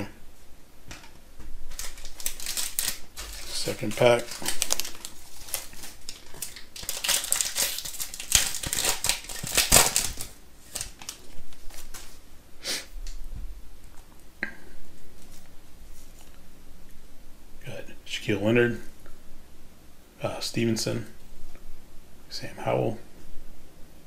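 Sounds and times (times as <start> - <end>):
cards rustling and clicking: 1.7 - 12.2
wrapper tearing and crinkling: 1.7 - 12.2.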